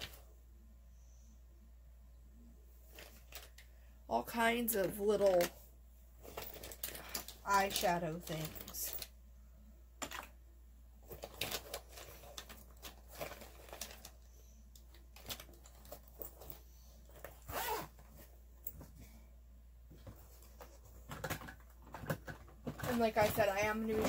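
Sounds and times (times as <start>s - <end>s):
rustling in plastic drawer: 2.8s - 3.6s, 4.6s - 5.6s, 6.2s - 9.1s, 11.0s - 14.3s, 15.0s - 19.0s, 19.9s - 24.0s.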